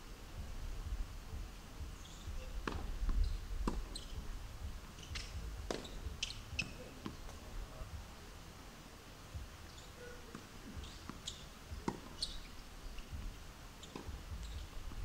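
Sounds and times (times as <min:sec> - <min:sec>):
low rumble: 0:00.0 - 0:06.6, 0:12.6 - 0:15.0
tennis ball hit and bouncing: 0:02.6 - 0:04.1, 0:05.0 - 0:07.4, 0:10.3 - 0:12.3.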